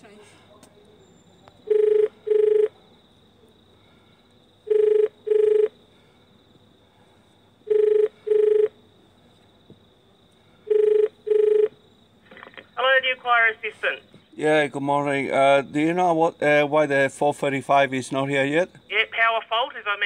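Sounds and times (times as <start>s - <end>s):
telephone ringing tone: 1.7s - 2.7s, 4.7s - 5.8s, 7.7s - 8.8s, 10.7s - 11.8s.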